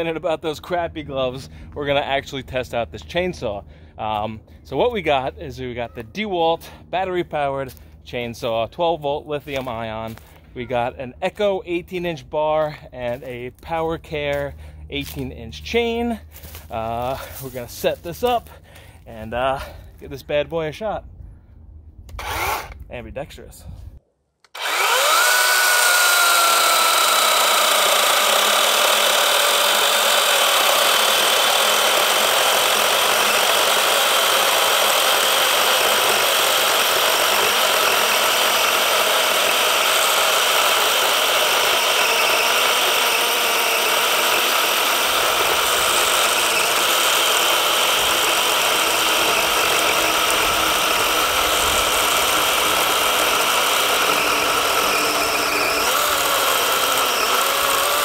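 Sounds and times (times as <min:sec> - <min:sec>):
chain cutting wood: 0:22.1 - 0:22.8, 0:24.5 - 0:58.0
electric chainsaw motor whine: 0:22.1 - 0:22.8, 0:24.5 - 0:58.0.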